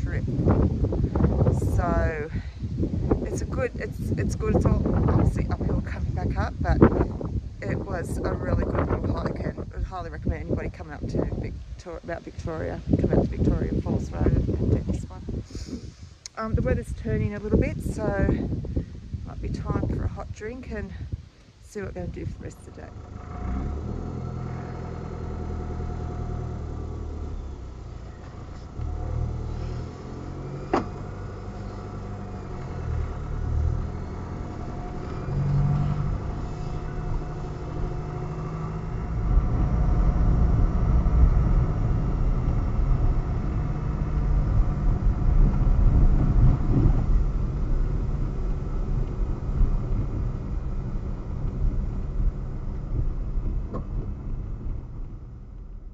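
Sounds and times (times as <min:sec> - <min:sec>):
tyre road noise on dirt: 0:00.0 - 0:55.9
car engine running: 0:22.2 - 0:55.9.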